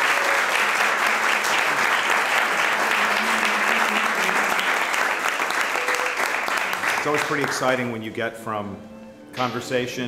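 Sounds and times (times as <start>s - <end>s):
small group applauding: 0.0s - 7.9s.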